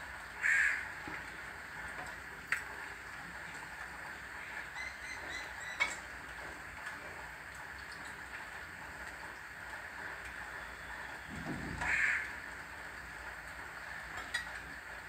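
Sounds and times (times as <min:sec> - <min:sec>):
rain hissing: 0:00.0 - 0:15.0
crow cawing: 0:00.4 - 0:00.9, 0:11.8 - 0:12.3.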